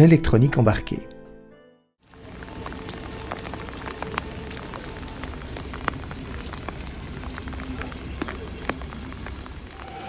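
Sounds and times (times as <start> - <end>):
rain falling: 2.0 - 10.0
raindrop ticks: 2.1 - 10.0.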